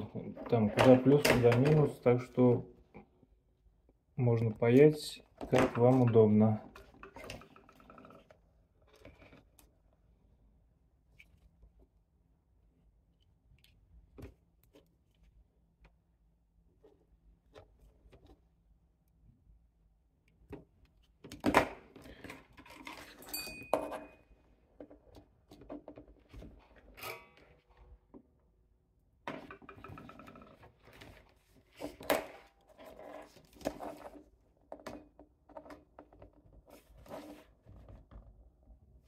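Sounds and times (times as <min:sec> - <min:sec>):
short ringing clink: 0:23.3 - 0:24.0.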